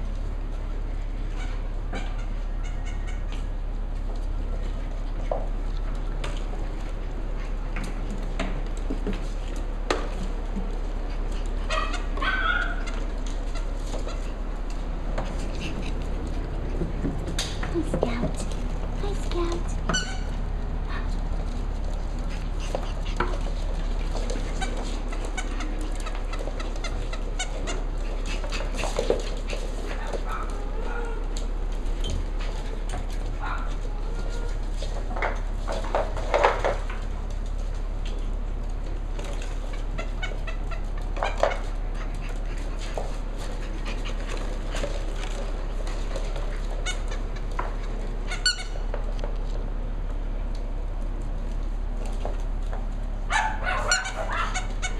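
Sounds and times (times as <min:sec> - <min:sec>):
puppies yipping and squeaking: 0:01.2 - 0:03.7, 0:10.8 - 0:36.9, 0:39.2 - 0:49.0, 0:53.3 - 0:54.9.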